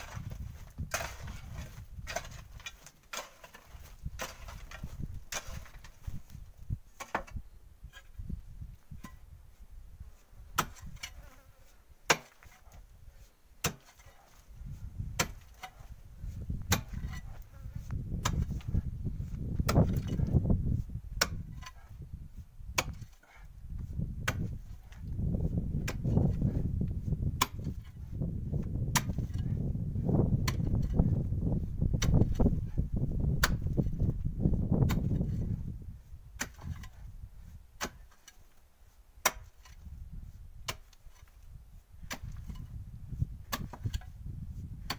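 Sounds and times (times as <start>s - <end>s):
pickaxe striking soil and stones: 0.0s - 6.4s, 7.0s - 8.1s, 10.5s - 11.3s, 12.1s - 12.8s, 13.6s - 14.4s, 15.0s - 17.4s, 18.0s - 20.4s, 21.2s - 21.9s, 22.7s - 23.4s, 24.2s - 25.1s, 25.7s - 26.5s, 27.4s - 28.0s, 28.6s - 29.6s, 30.4s - 31.2s, 31.9s - 32.5s, 33.3s - 34.2s, 34.8s - 35.5s, 36.3s - 37.1s, 37.8s - 38.6s, 39.2s - 40.0s, 40.6s - 44.9s.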